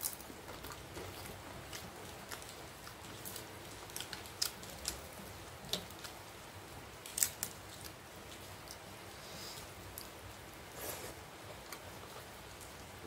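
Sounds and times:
crisp papad crackling: 0.0 - 10.3.

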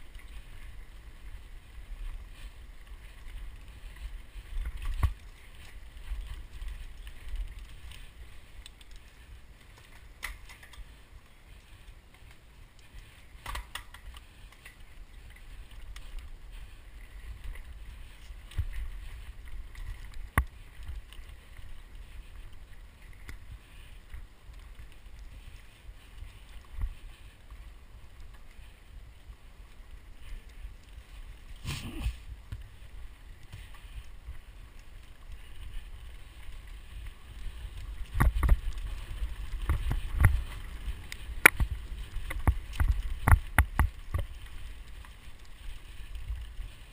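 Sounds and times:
wind rumble on microphone: 14.8 - 46.9.

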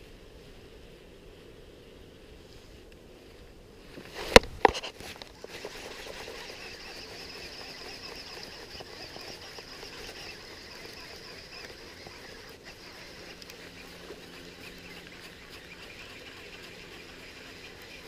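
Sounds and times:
hands scratching and rustling: 4.1 - 18.0.

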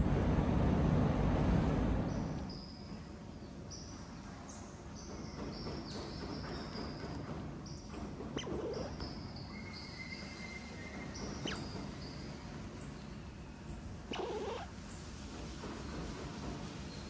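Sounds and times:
low background noise: 0.0 - 17.0
high-pitched animal chirps: 8.4 - 9.9, 11.4 - 11.8, 14.1 - 14.8.

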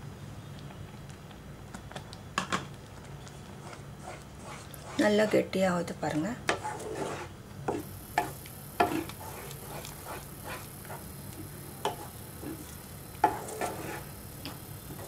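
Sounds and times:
spatula scraping a pan: 3.6 - 5.5, 6.5 - 14.2.

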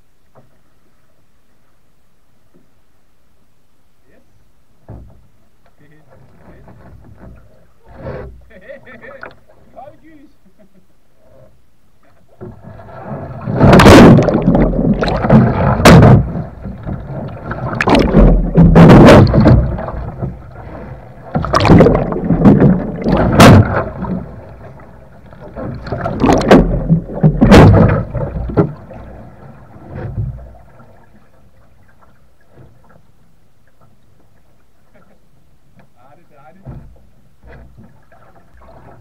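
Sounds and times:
water splashing and rushing: 12.3 - 34.1.

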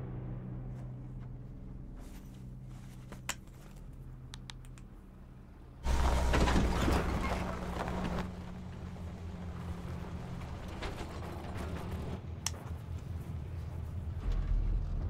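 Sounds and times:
low steady hum: 0.0 - 15.0
truck engine running: 5.3 - 12.4
tyres on dirt: 5.8 - 13.5.

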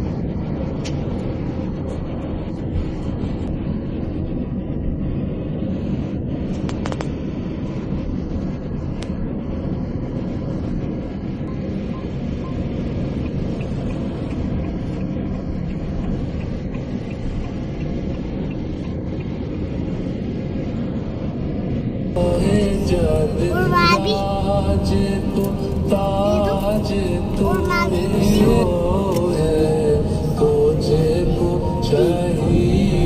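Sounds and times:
car road and engine rumble: 0.0 - 33.0.

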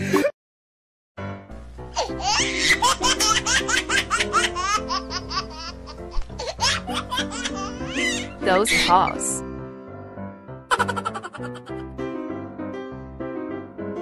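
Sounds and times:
background music: 1.2 - 14.0
baby giggling: 2.0 - 9.0, 10.7 - 11.8.

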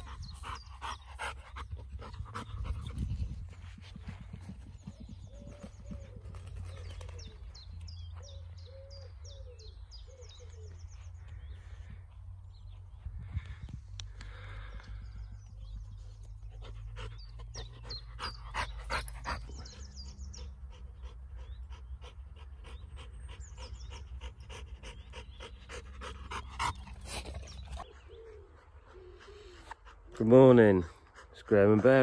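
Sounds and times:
dog panting: 0.0 - 7.2, 16.2 - 32.0
birds chirping: 0.0 - 32.0
wind rumble on microphone: 1.8 - 6.3, 11.4 - 14.1.

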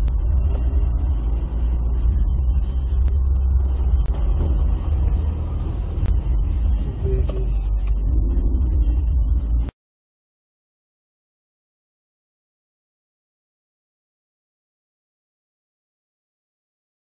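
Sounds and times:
car engine and road rumble: 0.0 - 9.8.

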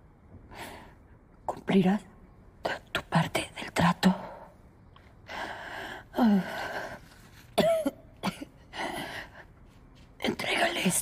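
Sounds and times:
woman coughing: 7.6 - 8.7.

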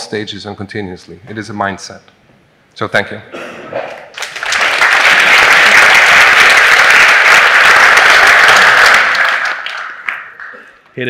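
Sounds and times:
audience applauding: 4.1 - 10.9.

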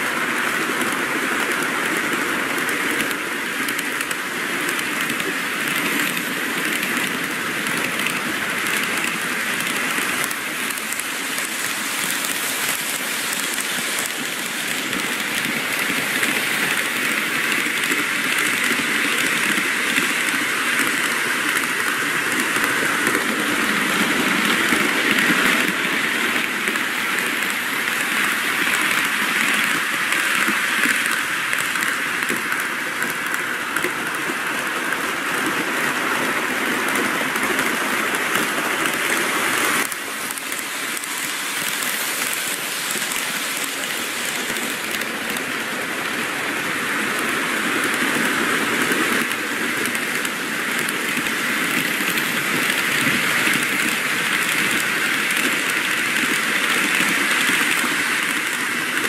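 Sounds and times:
model trains whirring on rails: 0.0 - 59.0.

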